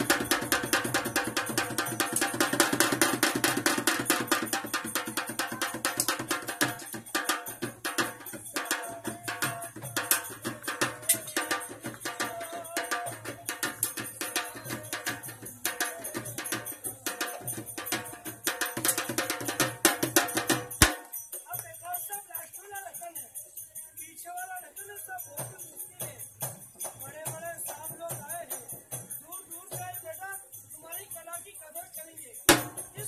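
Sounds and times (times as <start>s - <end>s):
hand-drum music: 0.0s - 21.6s, 32.5s - 33.0s.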